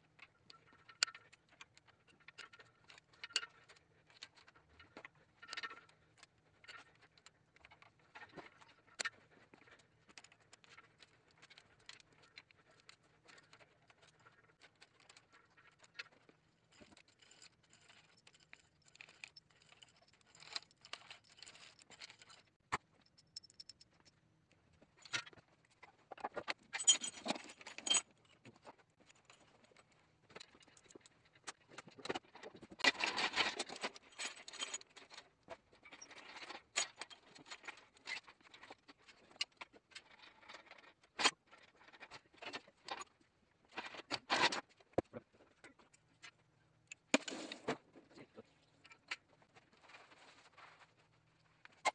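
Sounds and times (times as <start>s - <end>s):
metal tools clinking and scraping: 26.7s - 28.2s.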